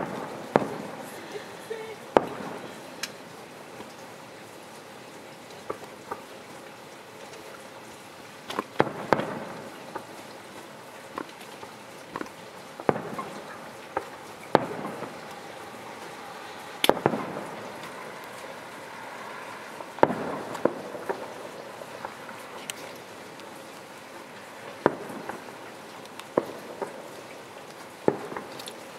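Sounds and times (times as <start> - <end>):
firework shells bursting: 0.0 - 4.2, 8.4 - 18.8, 19.7 - 23.9, 24.6 - 28.9.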